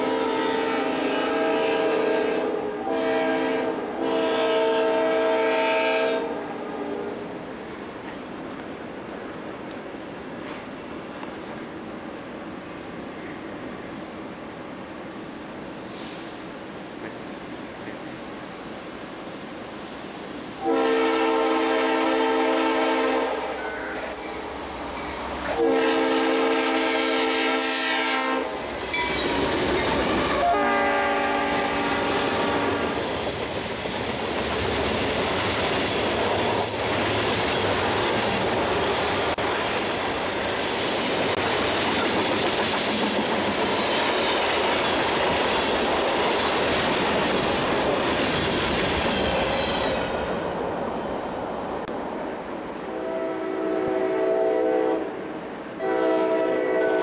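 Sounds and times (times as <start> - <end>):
locomotive horn blasts: 0.0 - 7.2, 20.6 - 24.2, 25.4 - 28.7, 30.2 - 33.0, 52.8 - 55.2, 55.8 - 57.0
train wheels on rails: 0.0 - 57.0.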